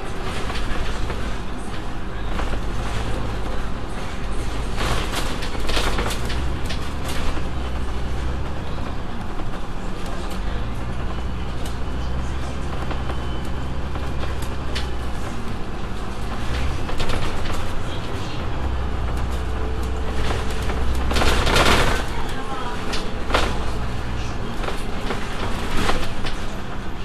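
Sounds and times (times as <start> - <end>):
bus body rattles: 0.0 - 27.0
bus engine hum: 0.0 - 27.0
road noise: 0.0 - 27.0.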